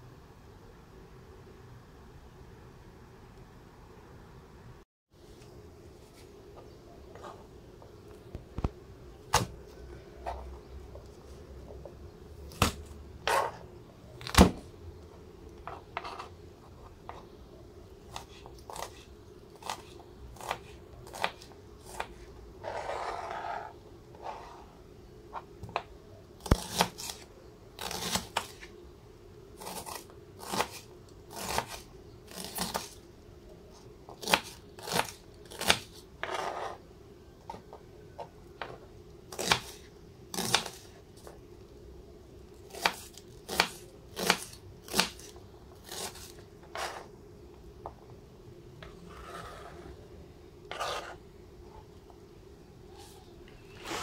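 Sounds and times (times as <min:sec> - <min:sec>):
faint steady hum: 0:00.0 - 0:54.0
knife cutting on cutting board: 0:12.6 - 0:13.6, 0:19.6 - 0:24.6, 0:50.7 - 0:51.2
rustling scrape: 0:22.6 - 0:24.7, 0:48.8 - 0:50.0, 0:50.7 - 0:51.2, 0:53.7 - 0:54.0.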